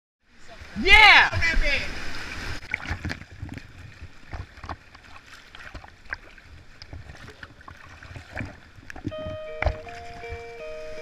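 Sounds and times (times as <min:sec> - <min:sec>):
faint rushing water: 0:00.2 - 0:11.0
knocks and splashes on hull: 0:02.6 - 0:10.4.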